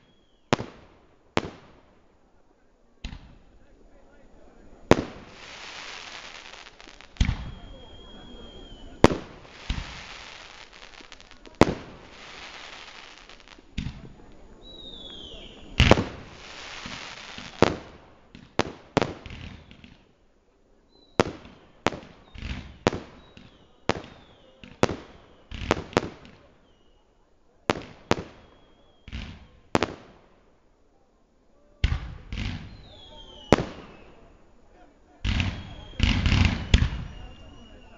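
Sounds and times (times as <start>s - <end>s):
falling firework whistle: 0.0s - 0.6s, 5.8s - 11.5s, 14.6s - 17.6s, 28.2s - 29.2s, 32.5s - 34.4s, 35.3s - 37.9s
hissing crackle: 4.8s - 18.2s
firework shells bursting: 4.9s - 14.1s.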